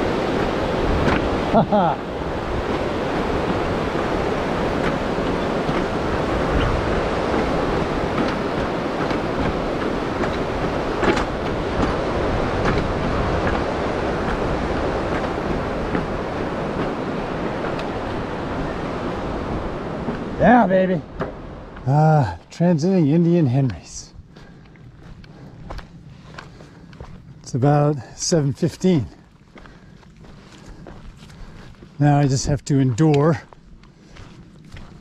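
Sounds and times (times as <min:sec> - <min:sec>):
stream rushing: 0:00.0 - 0:26.8.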